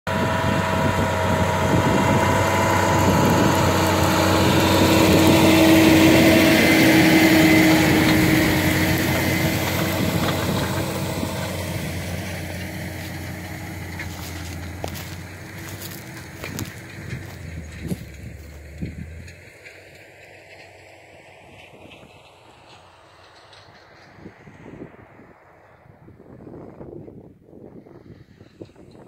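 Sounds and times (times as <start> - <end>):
steady whining tone: 0.1 - 19.2
tractor engine under load: 0.1 - 26.4.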